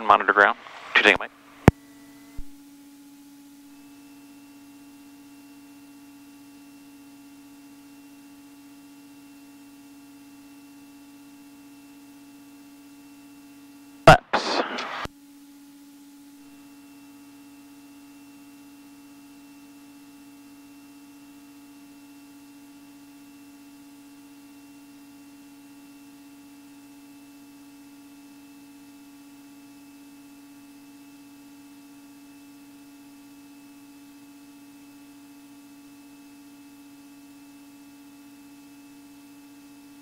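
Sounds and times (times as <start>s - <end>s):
electrical hum on intercom: 0.0s - 2.5s, 14.1s - 15.1s.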